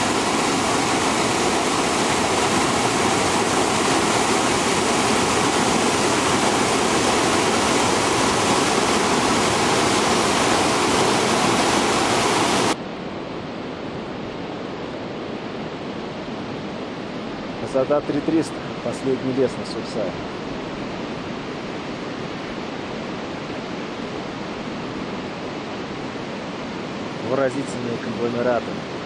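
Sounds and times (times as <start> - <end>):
river rushing over boulders: 0.0 - 29.0.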